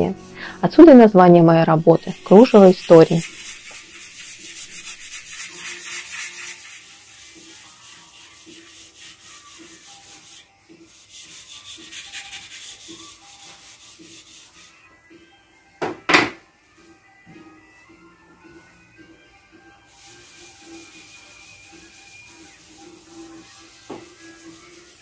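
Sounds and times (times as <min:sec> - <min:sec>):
rag scrubbing on stone: 0:01.8 - 0:14.8, 0:19.9 - 0:25.0.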